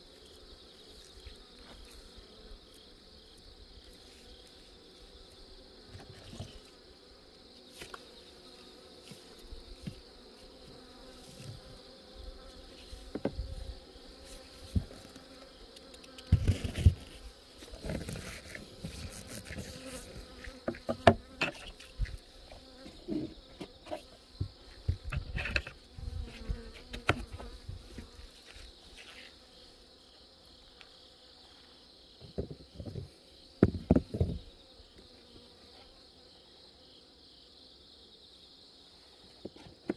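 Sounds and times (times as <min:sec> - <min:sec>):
high insect trill: 0:00.0 - 0:39.9
bees buzzing: 0:00.4 - 0:32.2
knocks and bumps: 0:32.2 - 0:34.5.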